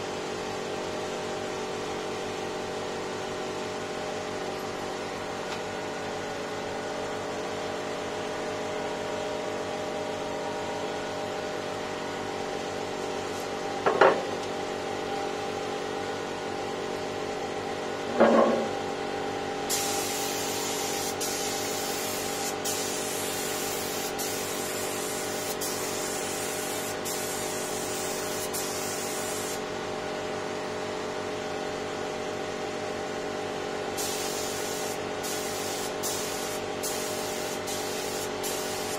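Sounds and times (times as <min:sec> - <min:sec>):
spray gun hissing: 0:19.7 - 0:29.6, 0:34.0 - 0:38.9.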